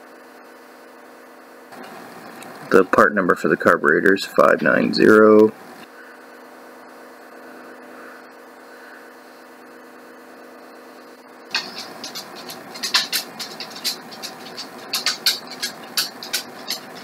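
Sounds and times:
electrical mains hum: 0.0 - 17.0
sharp light clicks of parts: 11.5 - 17.0.

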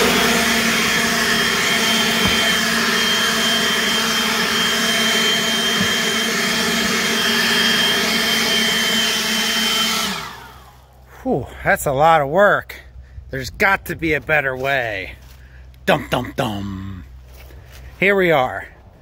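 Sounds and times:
leaf blower running: 0.0 - 11.3.

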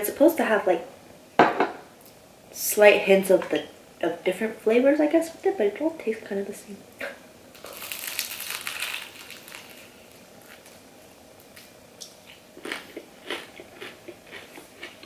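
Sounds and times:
crunchy bite into fried chicken: 7.6 - 10.7.

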